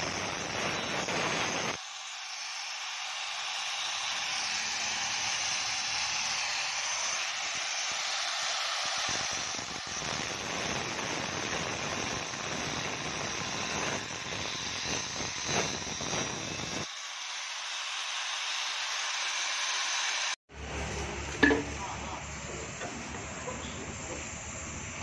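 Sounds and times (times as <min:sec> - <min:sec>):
angle grinder cutting steel: 0:00.0 - 0:20.4.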